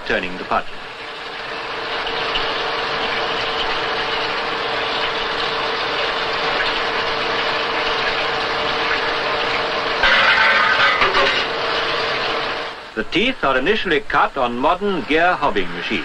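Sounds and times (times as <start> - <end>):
mid-pitched machine whine: 1.2 - 12.9.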